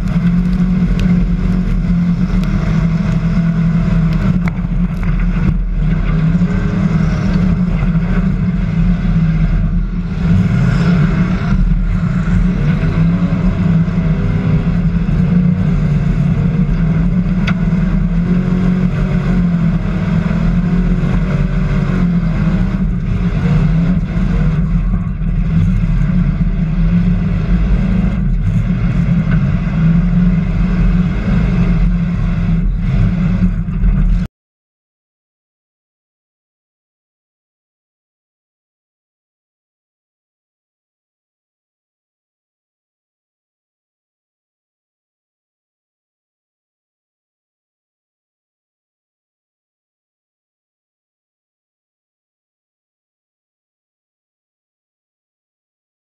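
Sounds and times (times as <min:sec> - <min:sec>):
race car engine revving: 0:00.0 - 0:34.3.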